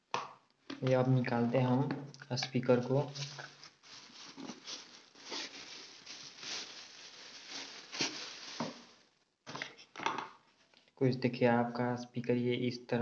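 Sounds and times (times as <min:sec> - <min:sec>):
plastic bag crinkling: 0:03.0 - 0:09.1.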